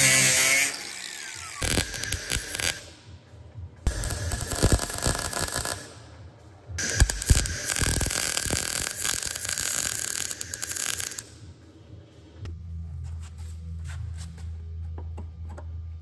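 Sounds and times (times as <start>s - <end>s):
welding arc crackling: 0.0s - 2.9s, 3.9s - 6.0s, 6.8s - 11.4s.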